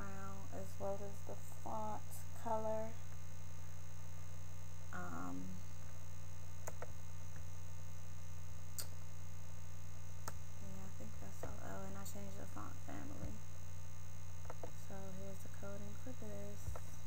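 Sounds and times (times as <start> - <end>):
low mains hum: 0.0 - 17.0
faint sharp clicks: 6.6 - 7.5.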